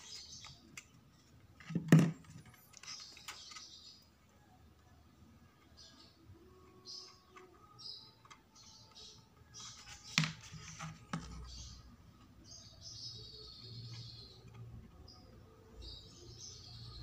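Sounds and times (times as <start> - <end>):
paper parts rustling and sliding: 9.5 - 11.5.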